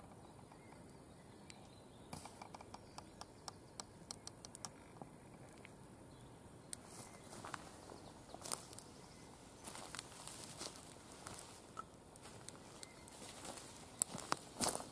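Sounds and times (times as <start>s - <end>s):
twig fire crackling: 6.7s - 14.9s.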